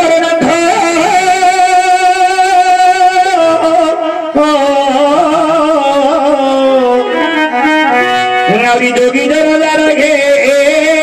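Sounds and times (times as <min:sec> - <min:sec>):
melody instrument long held notes: 0:05.5 - 0:10.2.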